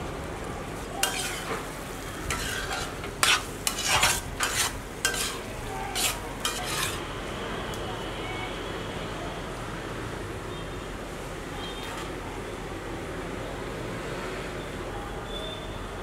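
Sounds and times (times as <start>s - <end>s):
low steady sizzle: 0.0s - 7.8s
spatula scraping a pan: 1.0s - 7.0s.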